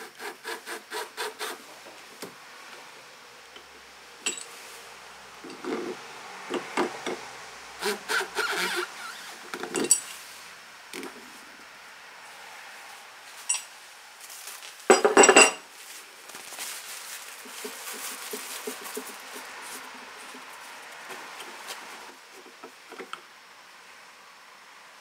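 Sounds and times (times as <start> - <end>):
metal tools clinking: 4.2 - 4.6, 9.6 - 10.2, 13.4 - 13.7, 14.9 - 15.6
paper towels rustling: 15.7 - 22.2.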